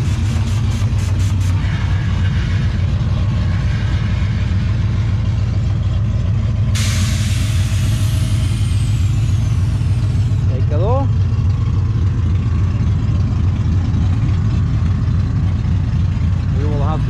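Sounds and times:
truck engine rumbling: 0.0 - 17.0
loud hiss: 6.8 - 10.4.

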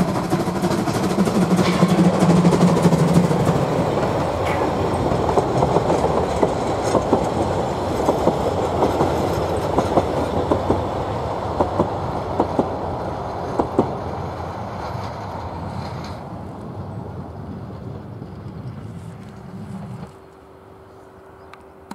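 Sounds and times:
train wheels clicking over rail joints: 0.0 - 16.8.

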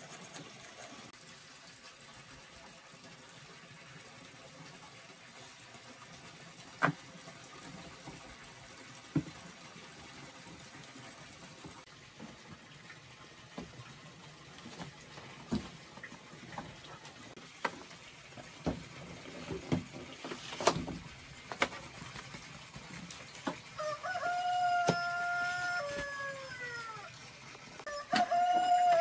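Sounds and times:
rooster crowing: 23.8 - 27.1, 27.9 - 29.0.

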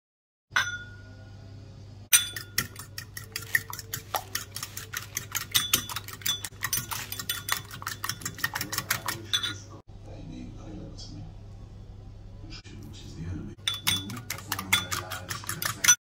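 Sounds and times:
fork whisking egg in bowl: 2.2 - 9.7, 13.6 - 16.0.

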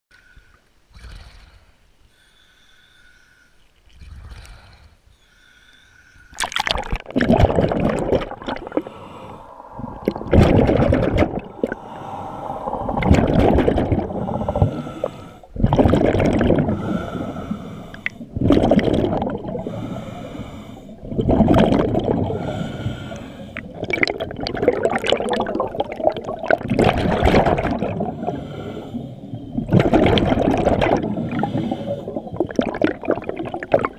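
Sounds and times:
air bubbling underwater: 6.4 - 20.1, 20.9 - 28.6, 29.4 - 33.9.

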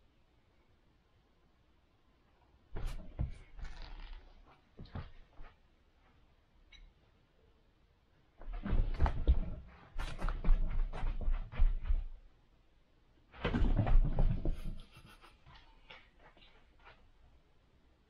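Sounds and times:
cat paws thudding and scrabbling: 2.7 - 5.5, 8.4 - 12.2, 13.3 - 17.0.

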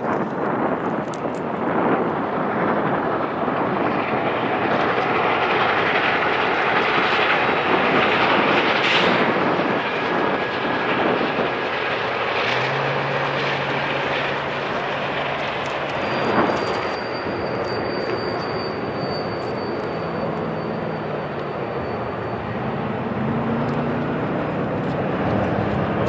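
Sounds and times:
diesel locomotives passing: 0.0 - 26.0
train wheels on rails: 0.0 - 26.0.

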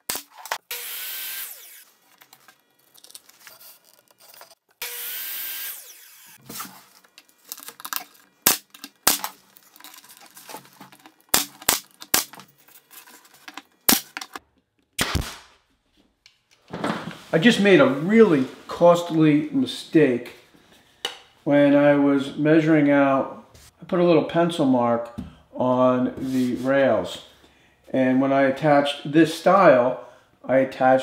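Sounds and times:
nail gun firing: 8.4 - 9.3, 11.3 - 12.4, 15.0 - 15.5.

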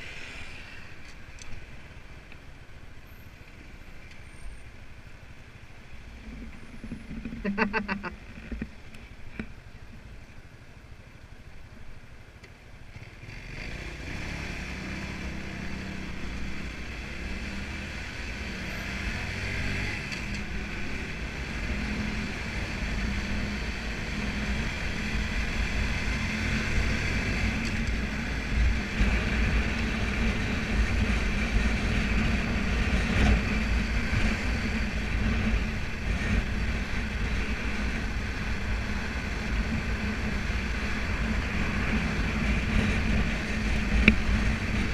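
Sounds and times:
wind rushing over microphone: 13.7 - 44.9.

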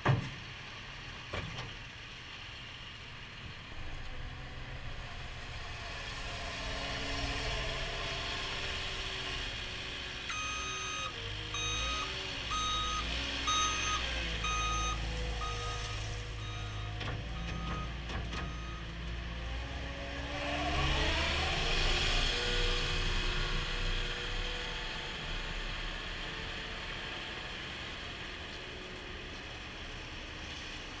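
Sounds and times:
diesel engine revving: 3.7 - 28.0
backup alarm beeping: 10.3 - 18.8.

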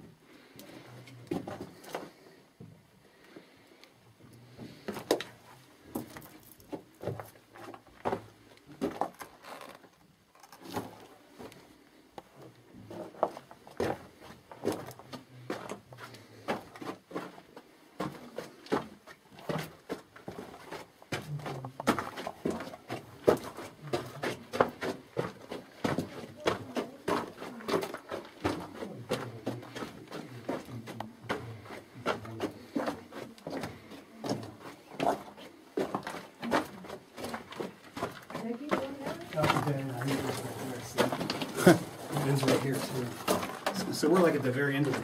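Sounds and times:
crunching footsteps: 12.8 - 45.0.

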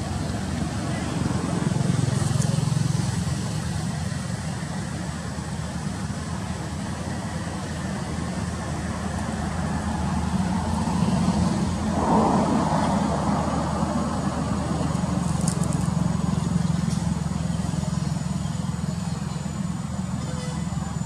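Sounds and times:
vehicle engine rumble: 0.0 - 21.0.

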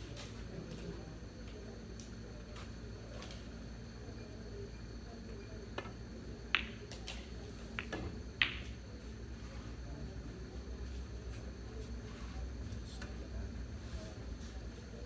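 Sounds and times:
billiard balls clicking: 5.8 - 8.8
cue tip tapping ball: 5.8 - 8.8.

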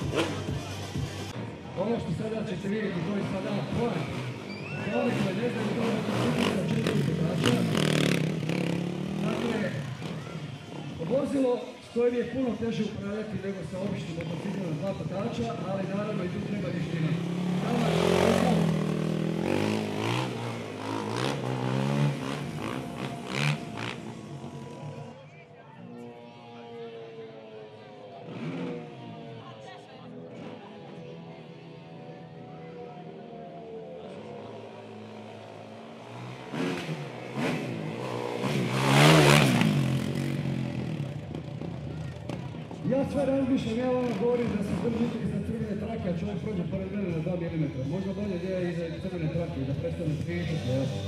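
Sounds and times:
vehicle engine revving: 0.0 - 1.4, 2.9 - 10.4, 13.8 - 25.1, 28.2 - 29.2, 34.5 - 41.7
faint background music: 41.0 - 51.0.

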